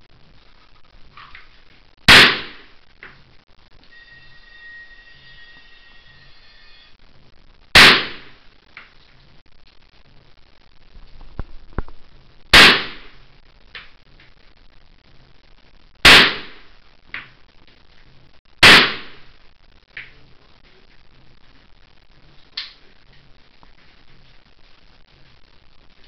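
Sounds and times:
rifle shots: 2.1s - 2.7s, 7.8s - 8.4s, 12.5s - 13.2s, 16.0s - 16.6s, 18.6s - 19.3s.

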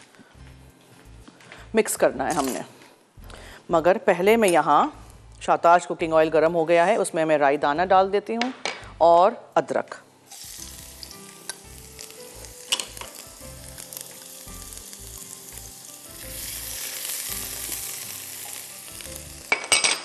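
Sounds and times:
seeds sizzling in hot oil: 10.3s - 19.9s.

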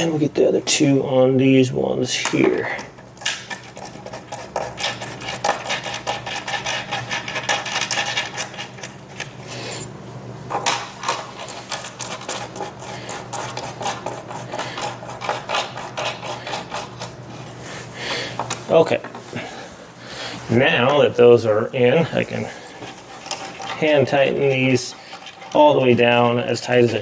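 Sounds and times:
screws clicking and scraping: 11.0s - 17.0s.

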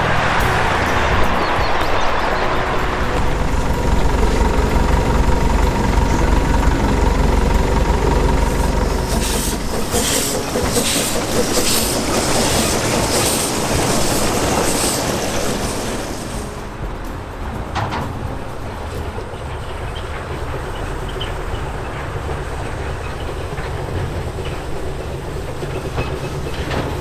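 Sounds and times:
steam locomotive exhaust beats: 0.0s - 27.0s
train wagons rumbling on track: 0.0s - 27.0s
steam hissing from drain cocks: 3.2s - 16.8s.

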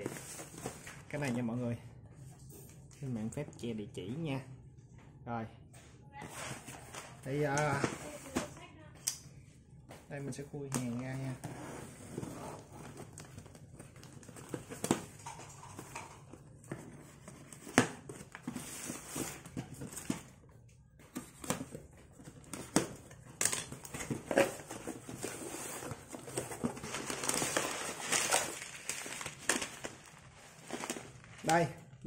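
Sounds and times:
plastic bag crinkling: 26.4s - 32.0s.

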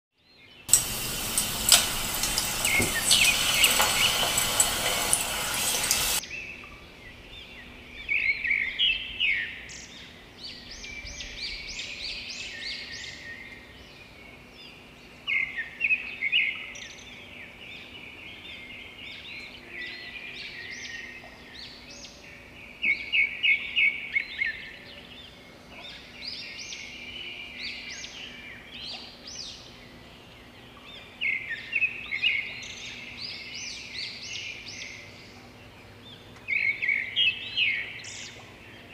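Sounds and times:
birds chirping and trilling: 0.3s - 38.9s
hot oil sizzling: 0.7s - 6.2s
faint steady hum: 0.7s - 8.0s.

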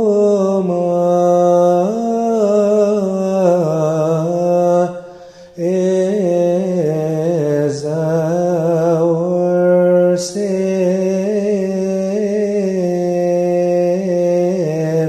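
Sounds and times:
man chanting unaccompanied: 0.0s - 15.0s
quick breaths: 5.0s - 5.6s.

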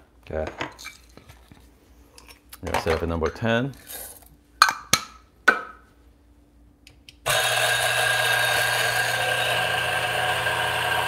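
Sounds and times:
electric coffee grinder grinding: 7.3s - 11.0s.

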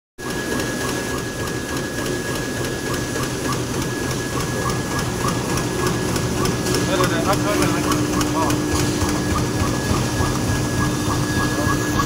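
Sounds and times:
regular mechanical ticking: 0.2s - 12.0s
thin high whine: 0.3s - 12.0s
laminator clattering: 4.0s - 12.0s.

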